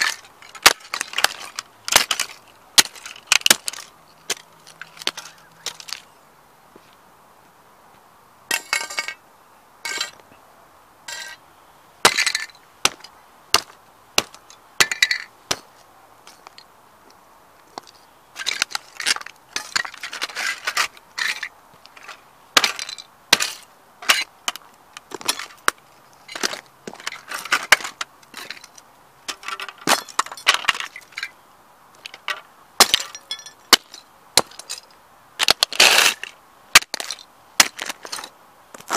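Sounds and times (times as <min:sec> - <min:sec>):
boots crushing plastic on asphalt: 0:00.0 - 0:06.1, 0:12.0 - 0:15.8, 0:17.6 - 0:28.7, 0:32.8 - 0:34.8, 0:35.4 - 0:38.9.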